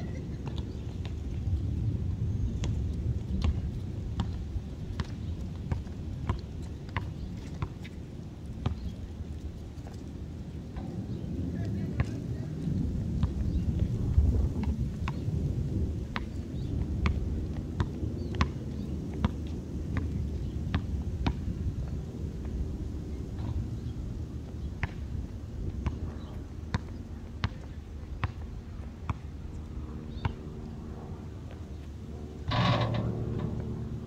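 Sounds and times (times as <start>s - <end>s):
basketball bouncing on concrete: 3.4s - 7.8s, 17.8s - 18.6s, 25.8s - 28.4s
low rumble: 30.8s - 34.0s.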